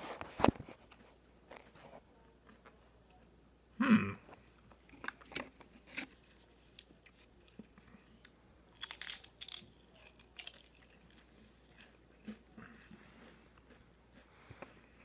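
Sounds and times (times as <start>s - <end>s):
crunching potato crisp: 4.4s - 15.0s.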